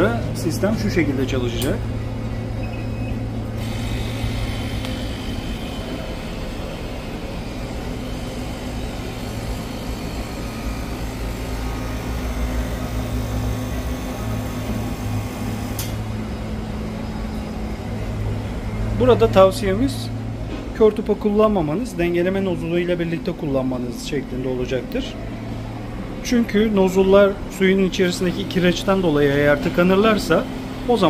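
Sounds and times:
pump humming: 1.9 - 19.6.

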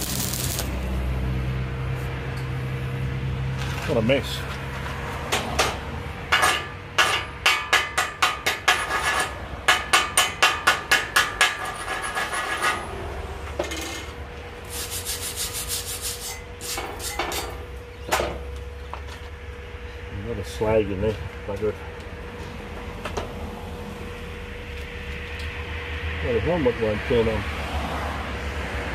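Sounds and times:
hammer tapping metal: 5.3 - 12.0
hammer scraping metal: 5.3 - 12.9, 14.8 - 17.6.

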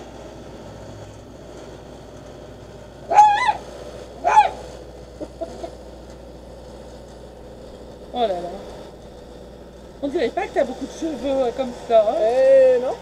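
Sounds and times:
high-pitched animal calls: 3.1 - 3.6.

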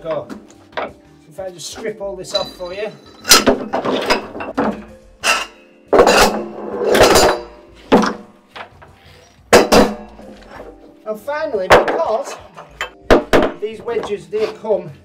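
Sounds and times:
metal clanks and knocks: 2.3 - 8.9, 9.5 - 10.7.

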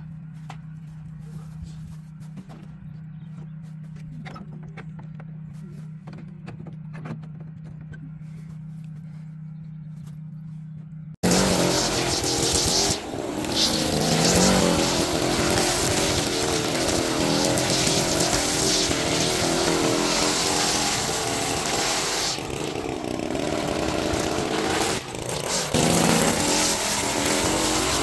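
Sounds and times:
small gas engine running: 11.2 - 28.0.

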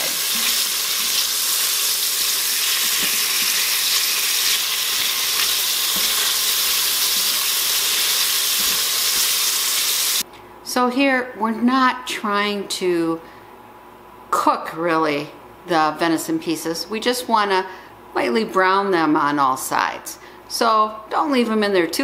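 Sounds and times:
meat sizzling in grease: 0.0 - 10.2.

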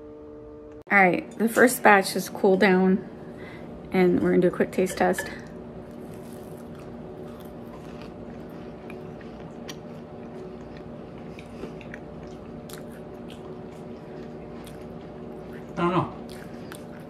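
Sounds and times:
steady background hum: 0.0 - 17.0
person chewing: 5.9 - 17.0.

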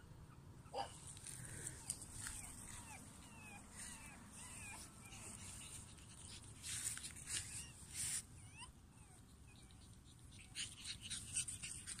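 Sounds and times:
rustling: 0.9 - 8.3
puppies squeaking and whimpering: 1.8 - 12.0.

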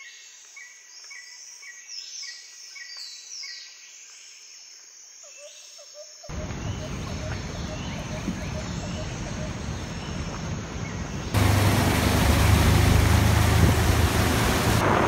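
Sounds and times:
falling whistled bird calls: 6.3 - 14.8.

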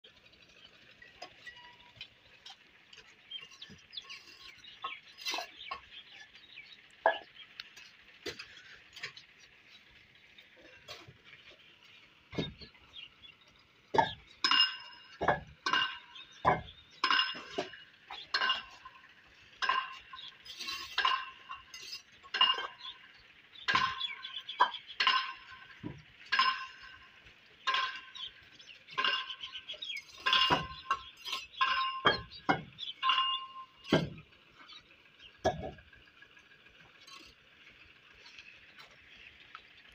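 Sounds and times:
trowel clinking on bricks: 1.2 - 6.3, 13.9 - 34.8.

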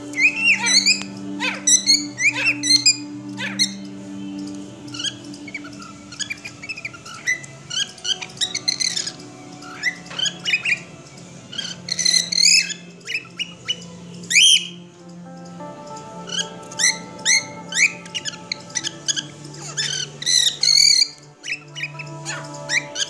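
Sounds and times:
cockatiel whistling and chirping: 0.1 - 3.9, 4.9 - 10.9, 11.5 - 14.8, 16.3 - 23.0.

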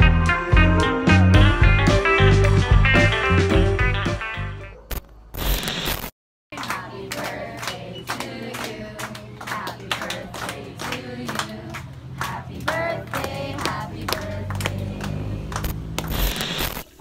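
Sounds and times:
background music: 0.0 - 4.7
rhythmic clapping: 0.6 - 3.3, 6.5 - 16.2
people singing together: 6.6 - 15.4.

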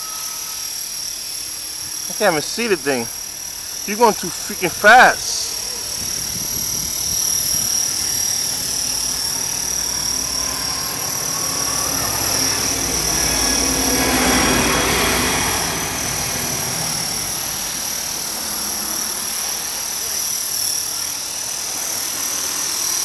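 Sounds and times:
rc helicopter high-pitched whine: 0.0 - 23.0.

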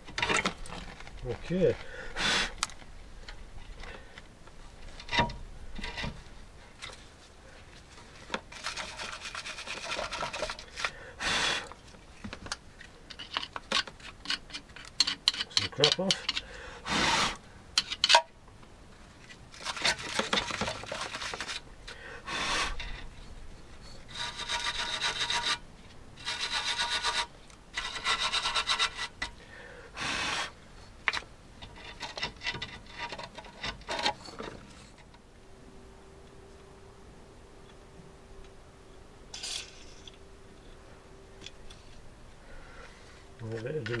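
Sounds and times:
rasping scraping on metal: 24.1 - 25.6, 26.2 - 29.4.

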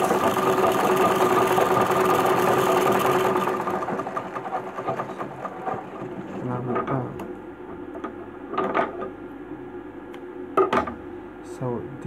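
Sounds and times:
sewing machine whirring: 0.0 - 7.0.

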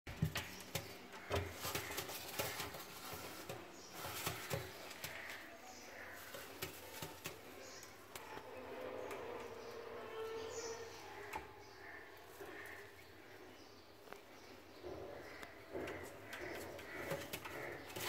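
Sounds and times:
pigeon feet tapping and scuffing: 0.1 - 8.3, 15.3 - 18.0.

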